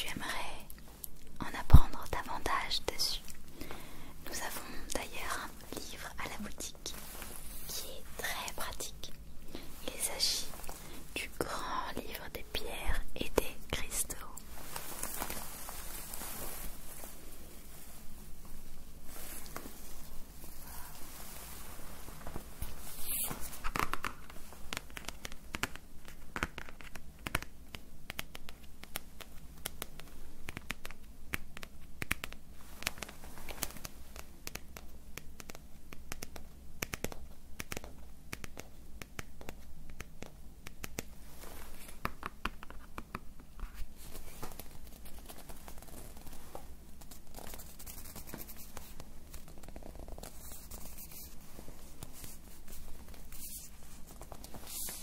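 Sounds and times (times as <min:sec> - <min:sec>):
crinkling and scratching: 0:13.8 - 0:27.5, 0:41.2 - 0:55.0
small crackles and ticks: 0:23.6 - 0:55.0.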